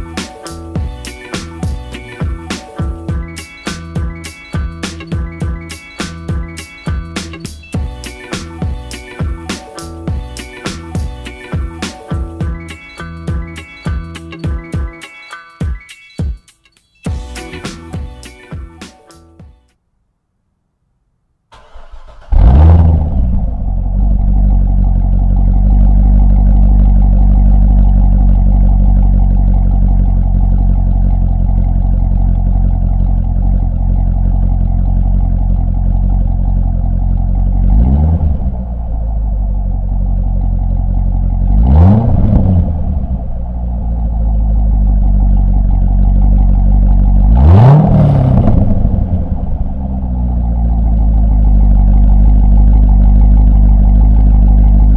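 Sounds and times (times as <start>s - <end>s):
car engine revving and idling: 21.6s - 54.9s
engine throttle blips: 21.6s - 54.9s.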